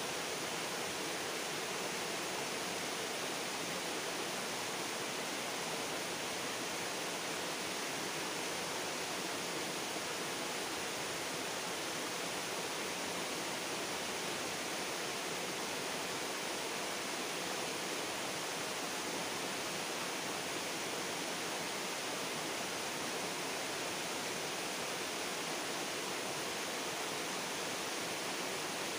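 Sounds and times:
stream water rushing: 0:00.0 - 0:28.9.

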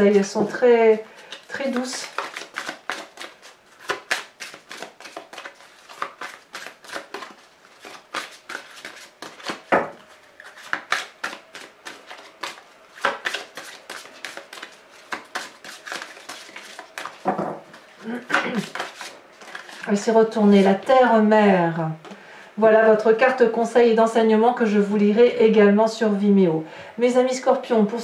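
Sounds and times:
cards being shuffled: 0:01.3 - 0:19.9.

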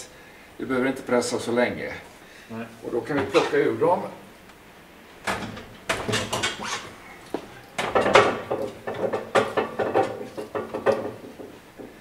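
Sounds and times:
screw press creaking and knocking: 0:05.2 - 0:07.0, 0:07.8 - 0:12.0.

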